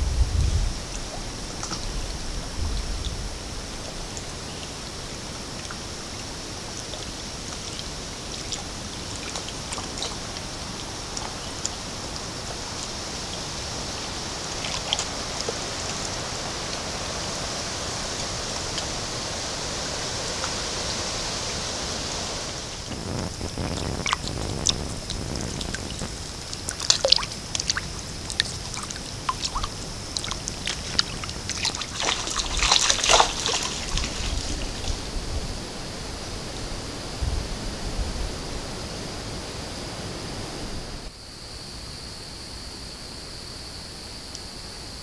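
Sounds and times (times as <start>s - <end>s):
steady high hiss: 0.0s - 45.0s
water splashing and dripping: 0.6s - 36.6s.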